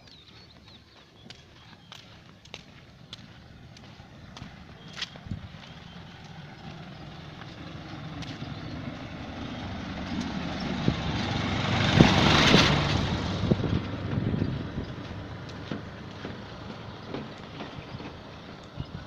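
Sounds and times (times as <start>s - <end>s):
light truck passing: 1.3s - 19.0s.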